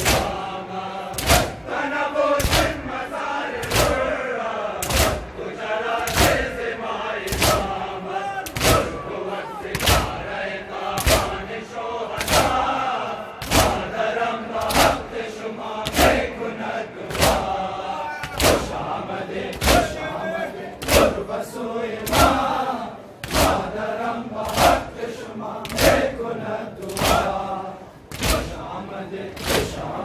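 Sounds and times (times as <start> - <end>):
mourning chant: 0.0 - 30.0
men beating their chests: 2.4 - 2.8, 7.2 - 9.0, 13.4 - 13.9.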